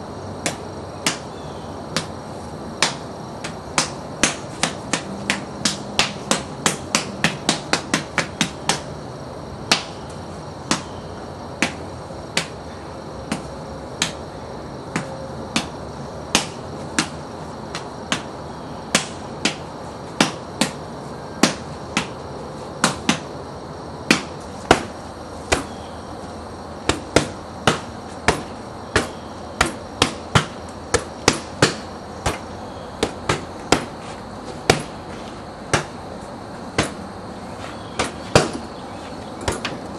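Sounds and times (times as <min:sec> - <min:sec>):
hands striking conditioning bags: 0:01.9 - 0:02.2, 0:02.8 - 0:08.9, 0:09.7 - 0:10.0, 0:10.6 - 0:11.0, 0:11.6 - 0:12.6, 0:13.2 - 0:14.2, 0:14.9 - 0:22.2, 0:22.8 - 0:23.3, 0:24.1 - 0:25.8, 0:26.8 - 0:36.1, 0:36.7 - 0:38.7, 0:39.4 - 0:39.9.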